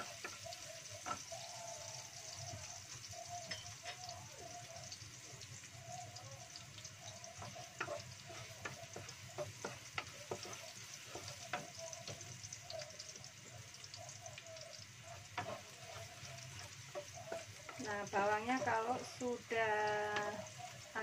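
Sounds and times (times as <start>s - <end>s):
garlic sizzling in oil: 0.0s - 21.0s
wooden spatula knocking pan: 7.3s - 19.2s.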